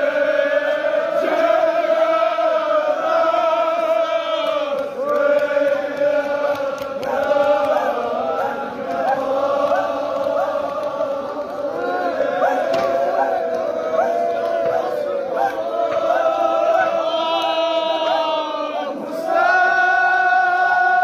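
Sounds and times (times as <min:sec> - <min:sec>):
men chanting in unison: 0:00.0 - 0:21.0
men calling out: 0:07.2 - 0:19.3.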